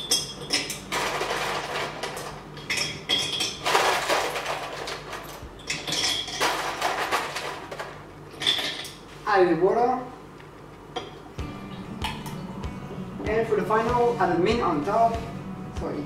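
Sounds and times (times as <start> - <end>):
ice cubes clinking into glass jar: 0.0 - 7.8.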